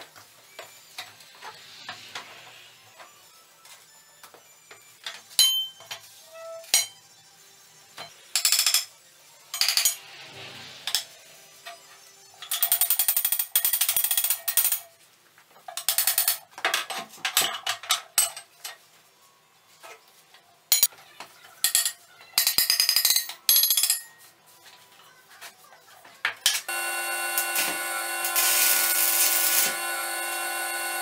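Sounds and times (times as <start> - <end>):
arc welding crackle: 26.7 - 31.0.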